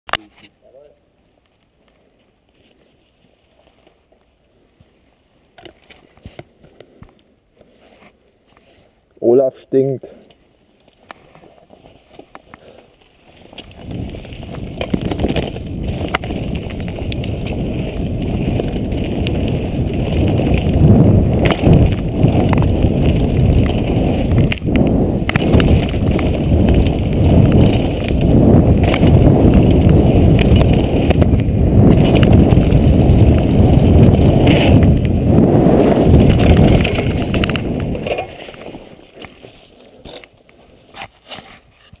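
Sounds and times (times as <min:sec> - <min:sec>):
wind rushing over microphone: 0:13.6 - 0:38.9
tyres rumbling over ground: 0:13.6 - 0:39.1.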